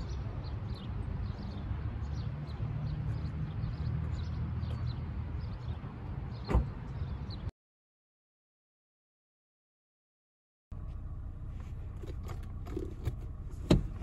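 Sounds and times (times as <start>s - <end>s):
small birds chirping: 0.0s - 7.5s
low outdoor rumble: 10.7s - 14.0s.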